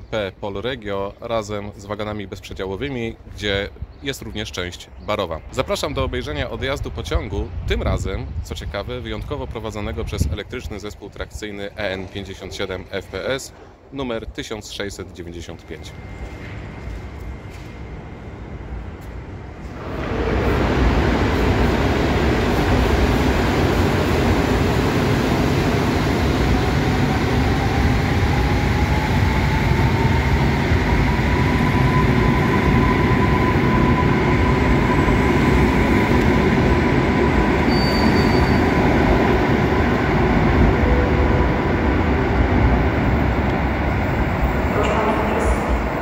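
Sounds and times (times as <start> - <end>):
electric train traction whine: 15.6 - 46.0
wheels rumbling on rails: 15.6 - 46.0.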